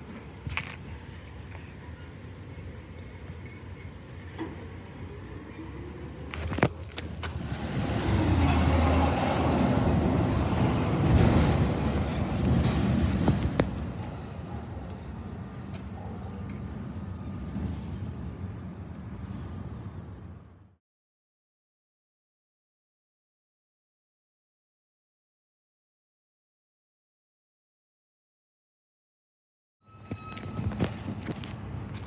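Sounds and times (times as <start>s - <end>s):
garbage truck diesel engine: 3.6s - 15.6s.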